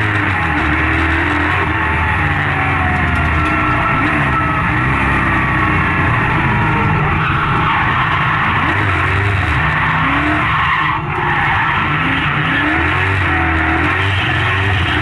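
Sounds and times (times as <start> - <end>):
car engine revving: 0.0 - 15.0
tyres spinning and skidding: 0.0 - 15.0.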